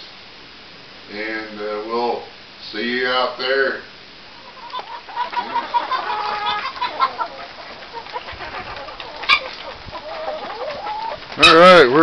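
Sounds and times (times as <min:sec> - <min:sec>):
chickens clucking: 0:04.3 - 0:12.0.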